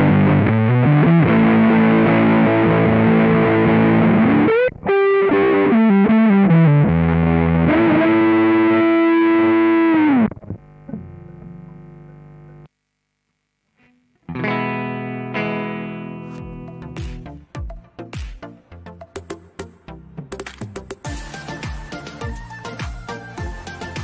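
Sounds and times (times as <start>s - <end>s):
fuzzed electric guitar: 0.0s - 18.3s, 20.4s - 24.0s.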